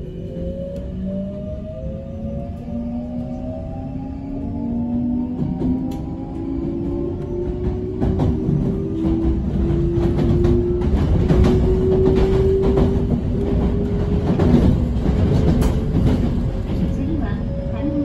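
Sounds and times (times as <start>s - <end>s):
train wheels rumbling on rails: 0.0s - 18.0s
rail joint clicks: 4.8s - 18.0s.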